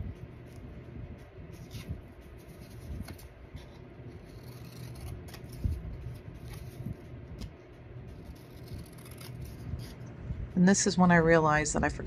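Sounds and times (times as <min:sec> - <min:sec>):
scissors snipping paper: 0:01.6 - 0:10.0.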